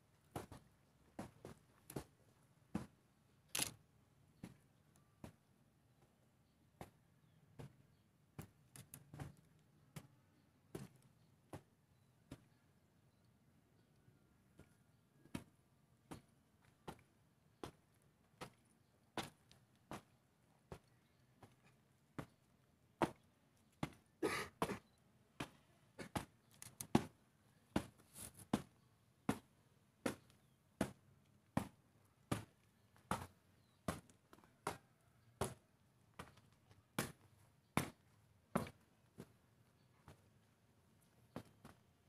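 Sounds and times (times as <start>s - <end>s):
boots marching: 0.2s - 3.0s, 31.6s - 39.4s, 40.1s - 41.9s.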